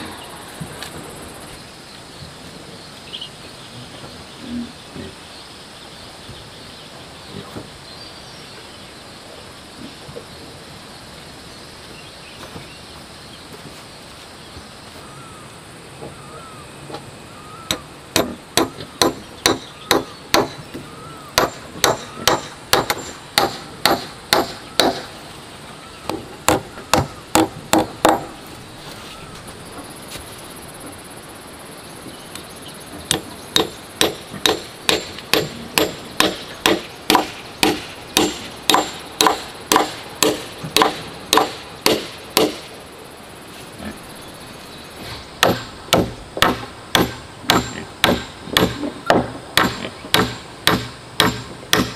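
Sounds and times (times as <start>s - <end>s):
hammer blows on wood: 17.7s - 25.2s, 26.1s - 28.4s, 33.1s - 42.8s, 45.4s - 51.9s.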